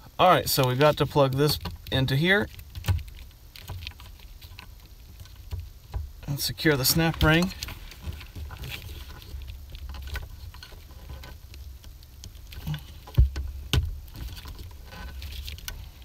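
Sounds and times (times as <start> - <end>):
rustling of wires: 0.0 - 16.0
small plastic clicks and scrapes: 7.3 - 16.0.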